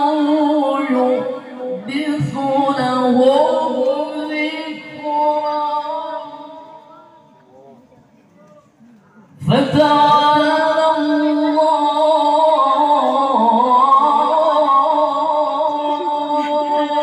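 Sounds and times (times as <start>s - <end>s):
man reciting in melismatic chant: 9.4s - 17.0s.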